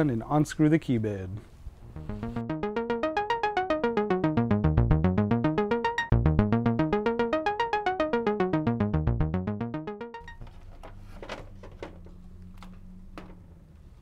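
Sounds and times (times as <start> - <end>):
synthesizer arpeggio: 1.8 - 10.2.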